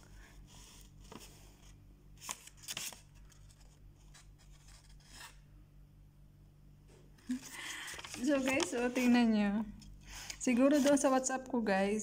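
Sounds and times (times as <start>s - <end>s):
faint low hum: 0.0s - 12.0s
paper rustling: 0.6s - 5.4s, 7.2s - 9.4s, 10.2s - 11.3s.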